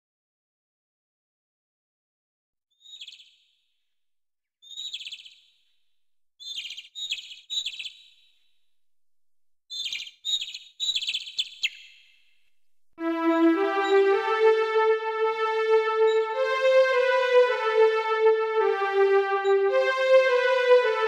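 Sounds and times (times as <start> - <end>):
small bird chirping: 2.7 - 3.5, 4.6 - 5.6, 6.4 - 8.5, 9.7 - 12.4.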